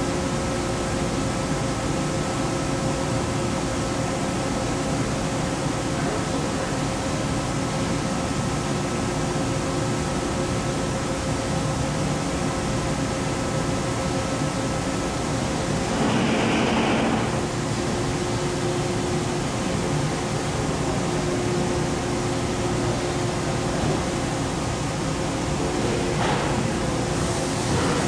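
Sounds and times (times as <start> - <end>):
cnc router running: 15.0 - 24.8
loud machine rush: 15.8 - 17.5.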